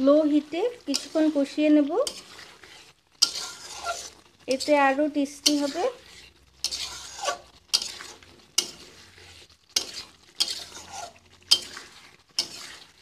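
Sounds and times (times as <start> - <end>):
short sizzle: 0.0 - 13.0
spatula scraping metal pan: 0.0 - 13.0.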